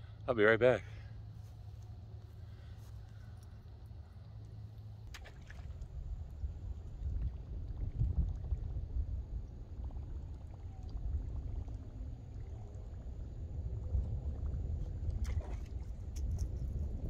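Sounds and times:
wind buffeting microphone: 0:05.8 - 0:17.0.

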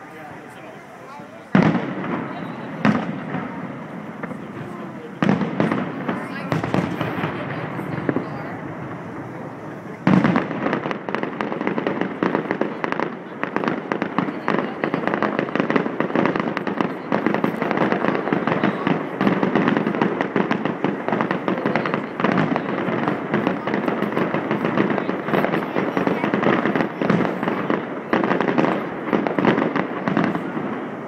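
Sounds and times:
fireworks bursting: 0:00.0 - 0:31.0.

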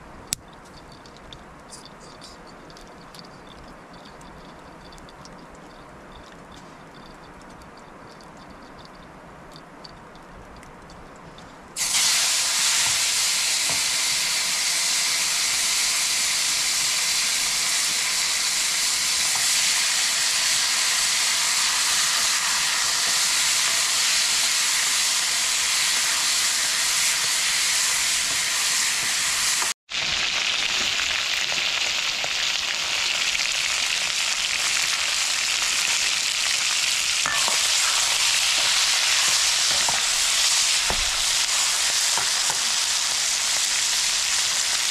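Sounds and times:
meat sizzling in hot oil: 0:11.8 - 0:44.9.

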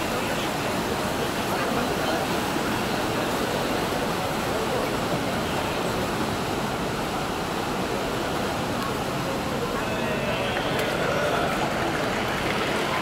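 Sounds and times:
crowd noise echoing: 0:09.6 - 0:13.0.

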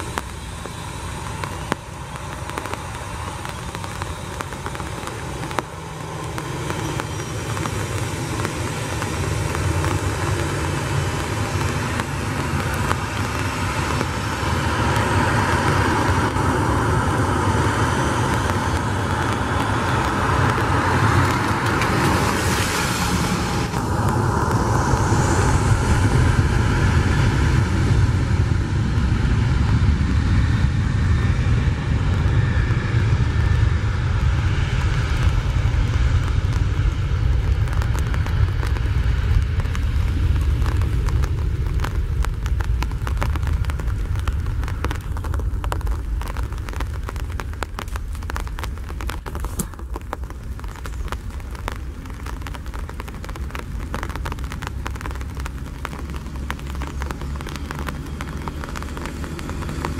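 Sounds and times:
jet engines spooling up: 0:00.0 - 0:46.7
spray hissing from wet runway: 0:00.0 - 0:59.9.

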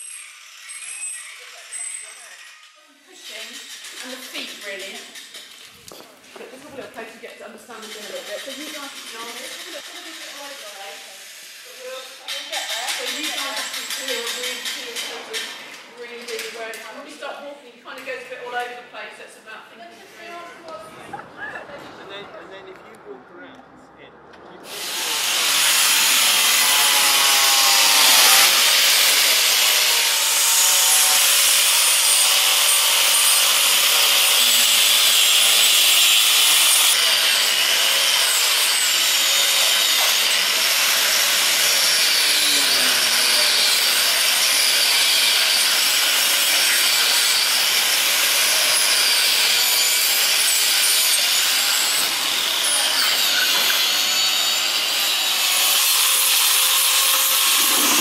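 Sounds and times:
angle grinder grinding wood: 0:07.8 - 0:16.6, 0:24.6 - 0:58.0.

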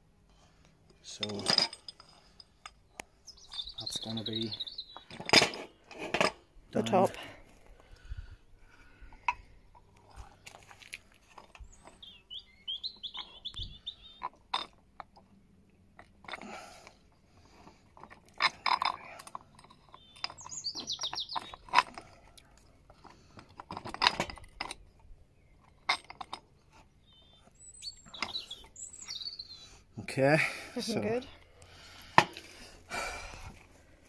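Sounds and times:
small birds chirping: 0:02.2 - 0:05.3, 0:07.7 - 0:16.0, 0:18.6 - 0:23.4, 0:24.3 - 0:32.6.

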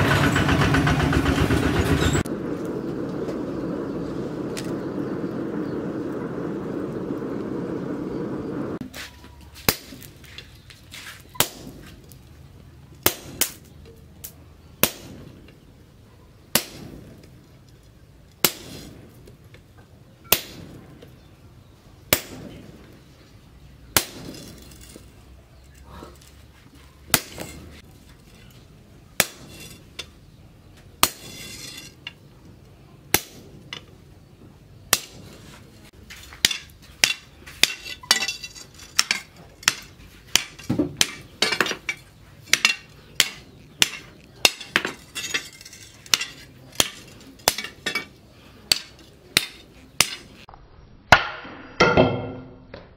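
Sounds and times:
sledgehammer striking chisel on metal: 0:27.1 - 0:27.8, 0:29.2 - 0:30.1, 0:31.0 - 0:32.2, 0:36.3 - 0:50.4.

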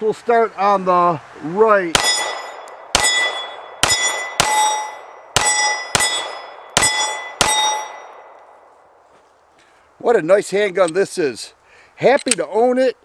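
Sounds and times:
pistol shots: 0:01.9 - 0:08.3
steel plate targets clanging: 0:02.0 - 0:08.2.

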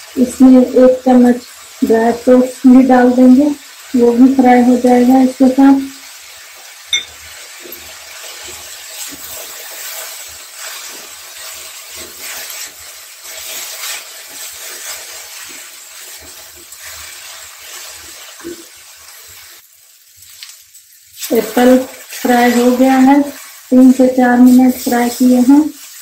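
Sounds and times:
apple frying and sizzling: 0:00.0 - 0:26.0
spatula scraping a metal pan: 0:07.7 - 0:18.6.

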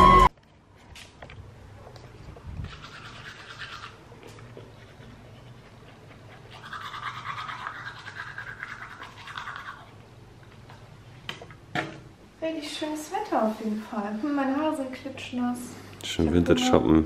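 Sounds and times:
toothbrush scrubbing teeth: 0:02.6 - 0:10.0.

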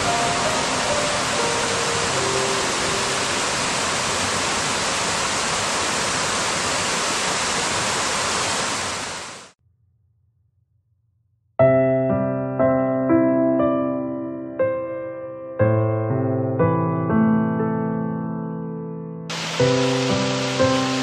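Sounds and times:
soft music: 0:00.0 - 0:03.6, 0:11.6 - 0:21.0
piano tune: 0:00.0 - 0:04.0, 0:11.6 - 0:21.0
rain hissing: 0:00.0 - 0:09.6, 0:19.3 - 0:21.0.

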